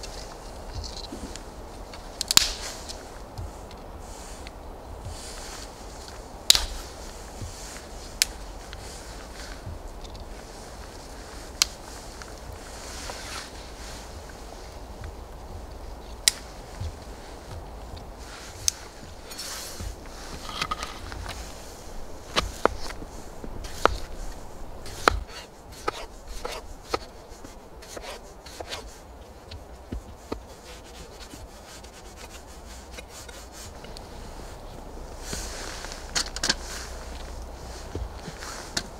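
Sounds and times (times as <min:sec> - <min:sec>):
sticks snapping: 0:00.0 - 0:34.0, 0:35.1 - 0:38.9
twigs rustling: 0:00.0 - 0:38.9
blade rubbing through potato: 0:24.9 - 0:28.8.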